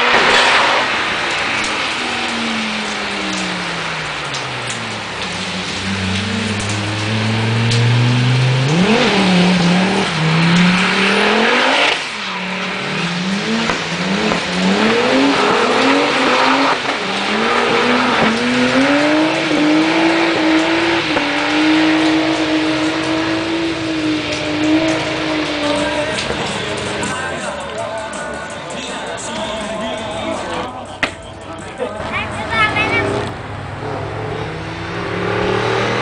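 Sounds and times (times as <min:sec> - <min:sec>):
car engine revving: 0:00.0 - 0:36.0.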